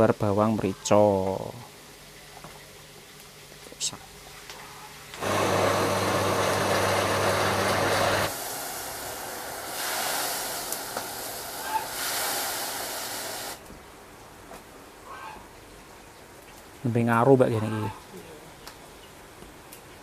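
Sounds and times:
fire crackles: 1.8 - 14.8
food sizzling in a wok: 5.0 - 13.6
electric blender running: 5.2 - 9.8.

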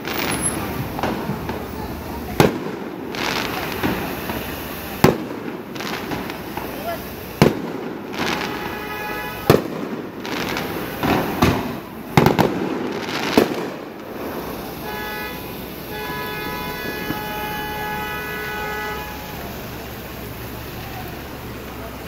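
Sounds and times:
fireworks bangs and crackles: 0.0 - 22.0
car horn blasts: 8.3 - 9.6, 14.8 - 19.6.

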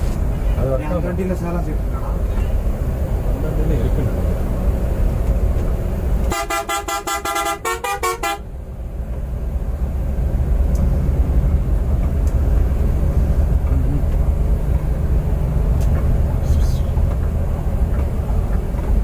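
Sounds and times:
coach engine drone: 0.0 - 19.0
road noise: 0.0 - 19.0
vehicle horn short blasts: 6.3 - 8.4.

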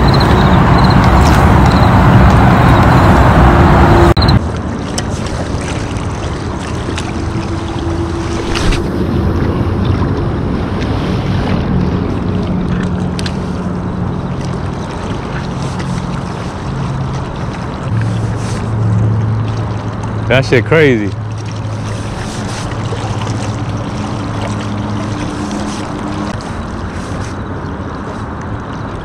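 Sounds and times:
distant boat motor humming: 0.0 - 29.0
water lapping on rocky shore: 4.4 - 29.0
wind noise on microphone: 7.9 - 12.5.

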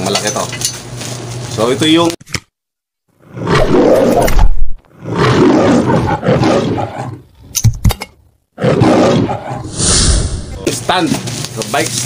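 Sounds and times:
lion roaring: 3.2 - 7.3, 8.6 - 10.7.

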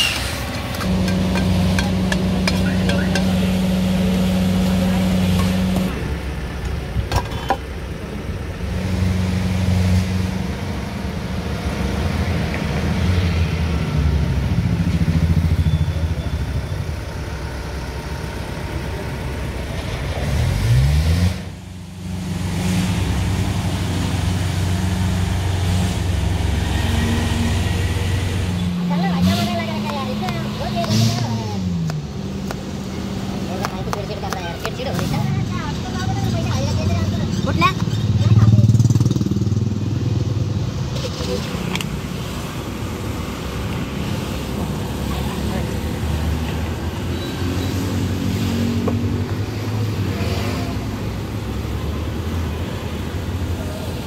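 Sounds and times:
vehicle engine revving: 0.0 - 6.6, 17.9 - 54.0
street noise: 0.0 - 54.0.

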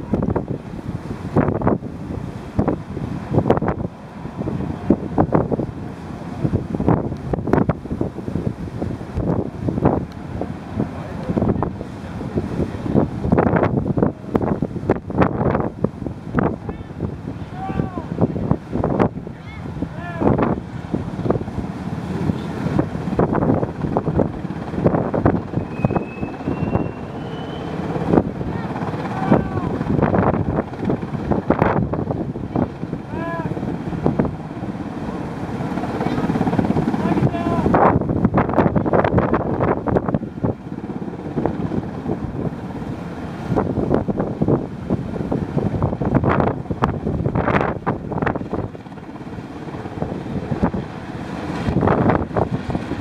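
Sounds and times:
sea water rushing: 0.0 - 39.6
rumble of ships: 0.0 - 53.0
wind buffeting microphone: 0.0 - 53.0
faint thin whistling tone: 25.6 - 27.7.

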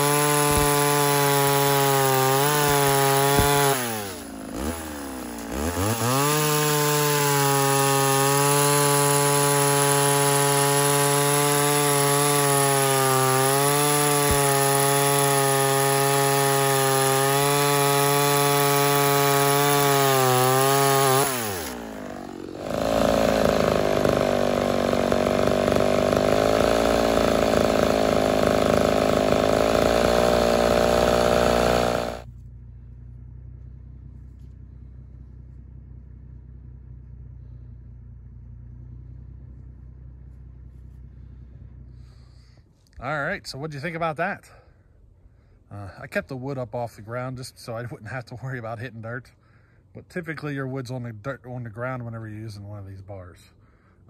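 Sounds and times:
chainsaw cutting through log: 0.0 - 32.3.

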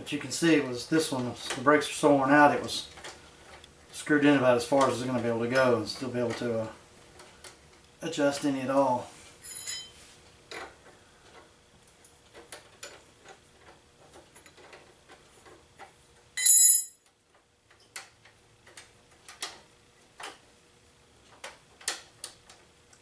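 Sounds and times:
metallic clink with ring: 9.4 - 9.9, 16.4 - 17.0.

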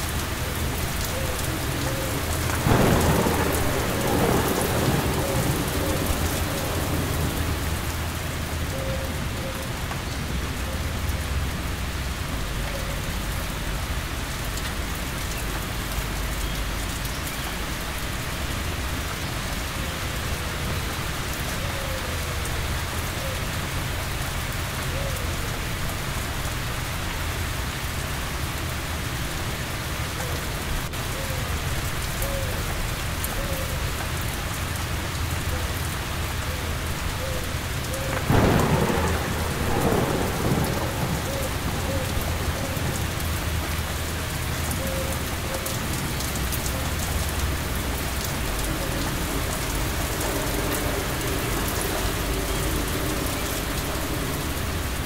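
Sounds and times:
heavy rain falling: 0.0 - 55.0
thunder clap rumbling: 0.2 - 8.7, 38.0 - 55.0.

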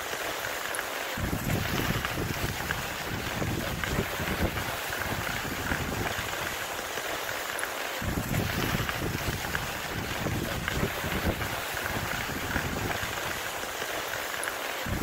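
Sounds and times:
sled runners hissing on snow: 0.0 - 15.0
wind buffeting microphone: 1.2 - 6.7, 8.0 - 13.7.

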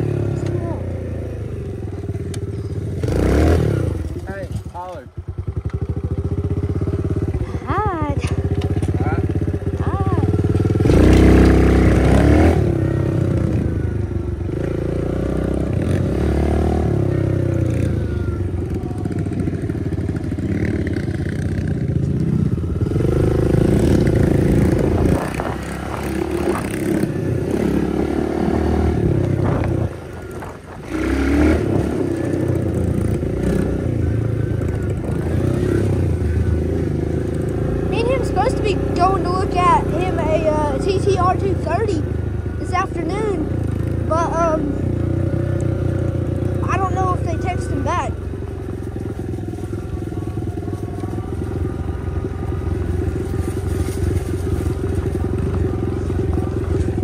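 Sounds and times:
motorbike engine revving: 0.0 - 57.0.

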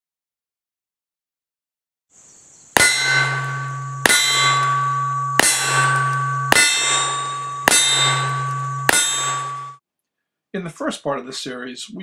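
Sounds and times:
steel target ringing clang: 2.8 - 9.8.

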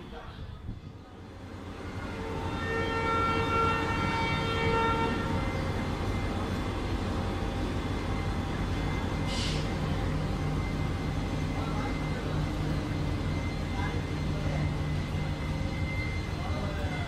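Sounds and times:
train coaches rumbling past: 0.0 - 17.0
train horn blast: 1.8 - 5.9
brief hiss: 9.3 - 9.8.

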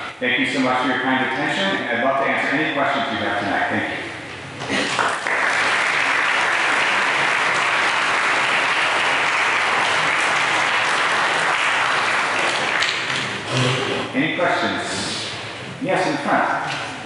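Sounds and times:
audience applauding: 4.7 - 13.8.

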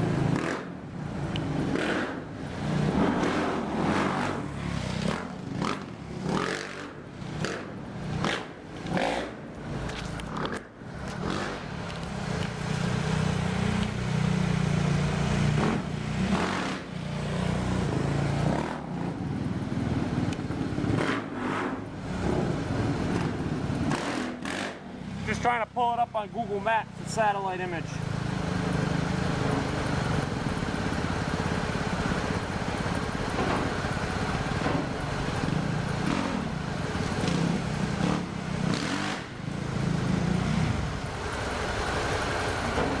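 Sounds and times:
motorcycle engine running: 0.0 - 25.3, 26.9 - 43.0.

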